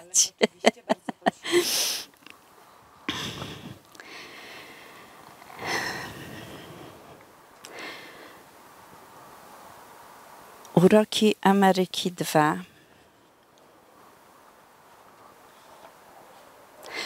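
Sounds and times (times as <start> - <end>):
woman laughing softly: 0.0 - 2.1, 3.1 - 3.8.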